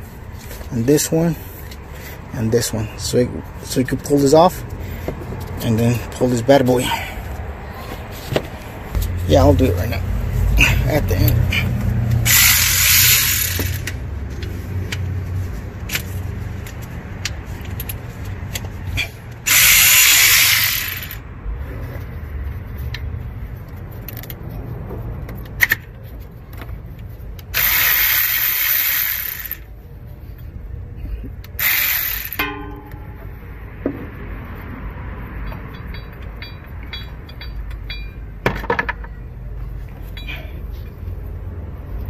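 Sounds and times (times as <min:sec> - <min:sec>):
electric ratchet whirring: 0:12.1 - 0:14.0, 0:19.4 - 0:21.2, 0:27.5 - 0:29.7, 0:31.6 - 0:32.4.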